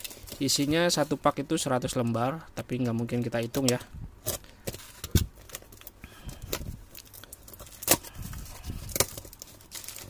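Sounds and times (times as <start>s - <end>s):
cardboard parcel being opened: 0.0s - 1.2s, 3.6s - 10.0s
packing tape crackling: 2.7s - 10.0s.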